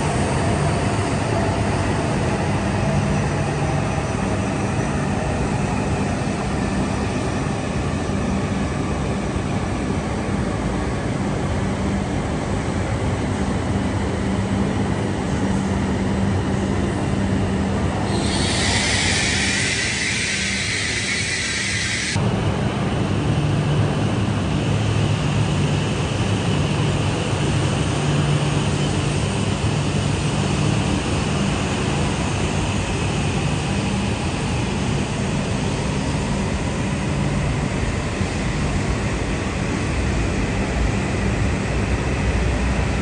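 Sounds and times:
train hum and rumble: 0.0 - 43.0
high hiss: 18.0 - 22.2.

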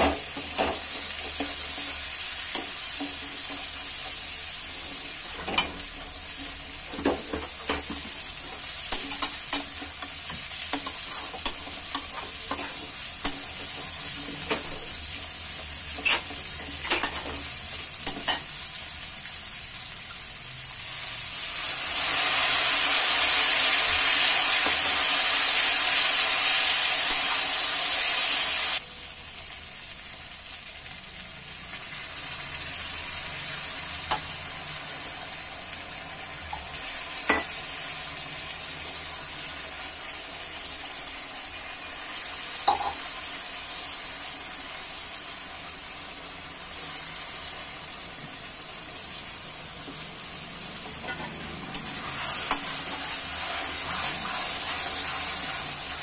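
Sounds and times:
meat sizzling in oil: 0.0 - 56.0
metal spatula scraping a pan: 15.6 - 18.5, 50.9 - 55.7.

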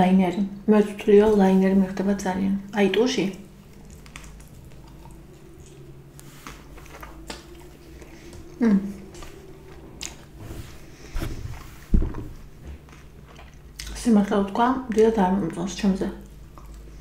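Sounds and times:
pizza being chewed: 3.2 - 17.0
low thumps: 3.4 - 13.2
wet mouth clicks: 3.7 - 9.3.

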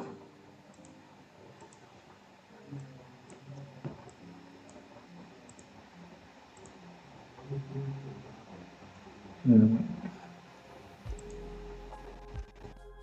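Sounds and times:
faint low tones: 0.0 - 13.0
computer mouse clicks: 0.7 - 1.0, 1.6 - 2.0, 2.8 - 5.8, 11.1 - 11.4.

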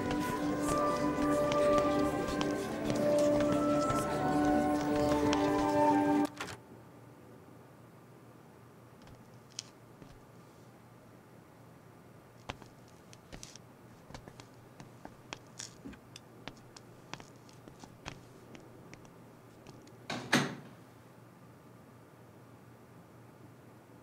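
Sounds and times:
soft footsteps: 0.0 - 6.4, 9.0 - 10.3, 12.4 - 20.0
door shutting with a thud: 20.1 - 20.8.

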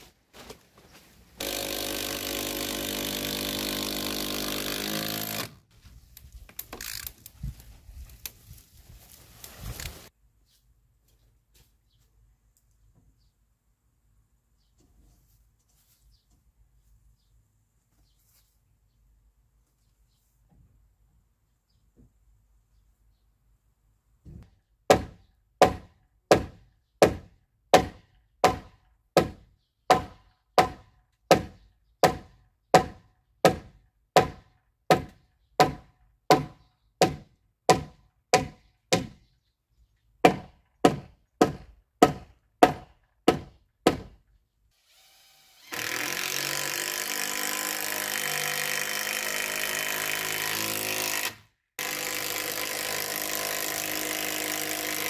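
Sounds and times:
handheld power tool running: 1.4 - 5.6, 44.8 - 55.0
hammer striking timber post: 24.9 - 39.2, 40.2 - 44.2.

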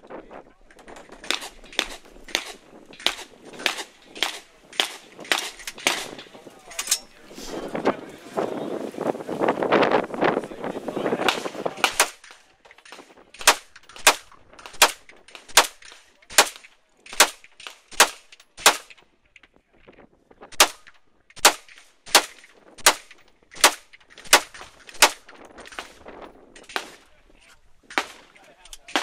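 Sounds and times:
rifle shots with echo: 0.8 - 7.2, 11.2 - 19.0, 20.6 - 26.0, 26.6 - 27.1, 27.9 - 29.0.

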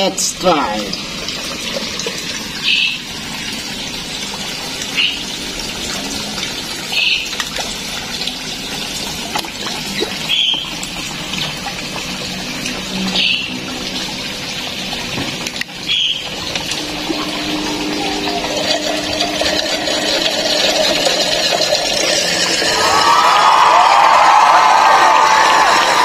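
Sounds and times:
running water splashing: 0.0 - 26.0
high bird chirp: 15.9 - 16.2.

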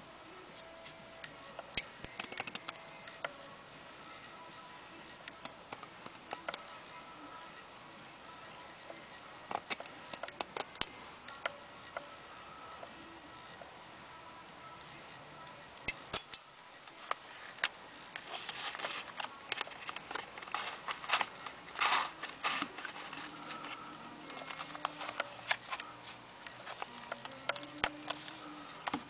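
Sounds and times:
metal and plastic clicks: 1.7 - 3.3.

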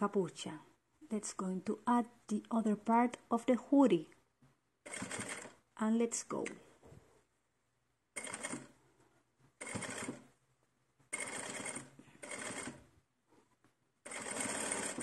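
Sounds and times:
sewing machine stitching: 4.8 - 5.6, 8.2 - 8.8, 9.6 - 10.3, 11.1 - 12.9, 14.0 - 15.0.

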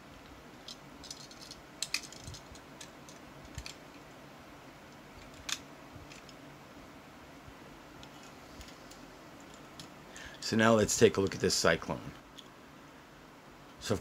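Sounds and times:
toy car clicking on plastic: 0.7 - 3.8.

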